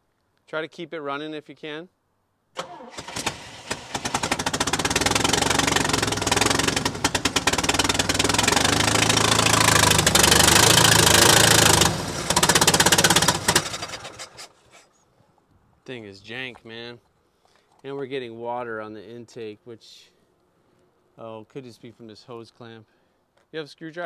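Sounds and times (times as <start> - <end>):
engine cranking: 2.6 - 14.6
engine running roughly: 3.2 - 14.4.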